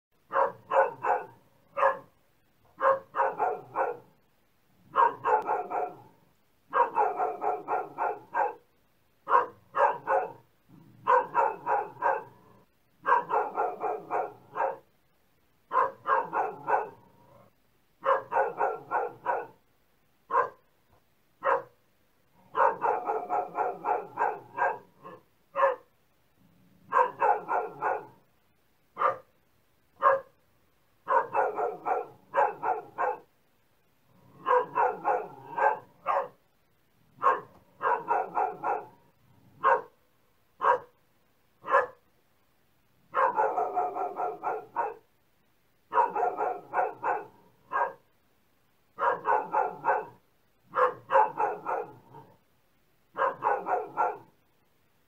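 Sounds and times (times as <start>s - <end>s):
dog barking: 0.3s - 4.2s, 4.9s - 14.9s, 15.7s - 17.1s, 18.0s - 19.6s, 20.3s - 20.7s, 21.4s - 21.8s, 22.4s - 25.9s, 26.8s - 28.2s, 29.0s - 29.4s, 30.0s - 30.4s, 31.0s - 33.3s, 34.3s - 36.4s, 37.2s - 40.0s, 40.6s - 41.0s, 41.6s - 42.0s, 43.1s - 45.1s, 45.9s - 48.1s, 49.0s - 52.4s, 53.1s - 54.4s.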